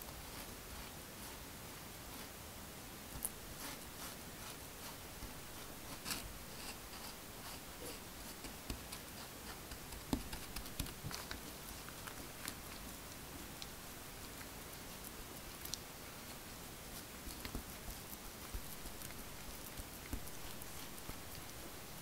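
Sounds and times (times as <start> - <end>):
spatula scraping crumbs: 3.3 - 12.7.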